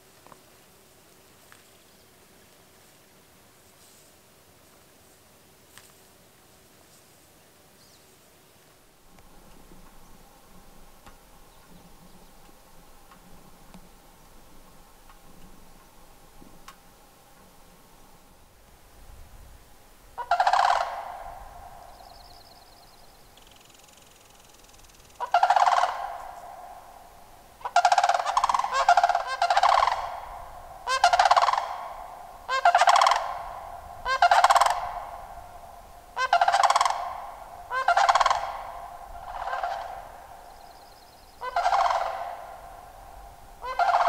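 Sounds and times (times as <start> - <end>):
rattling animal calls: 20.2 - 22.1, 23.5 - 43.0, 43.6 - 44.0.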